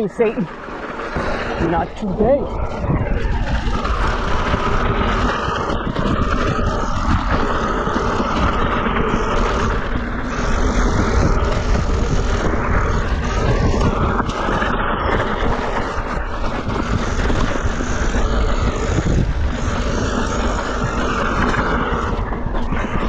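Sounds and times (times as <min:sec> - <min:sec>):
bike rattling and clattering: 0:00.0 - 0:23.0.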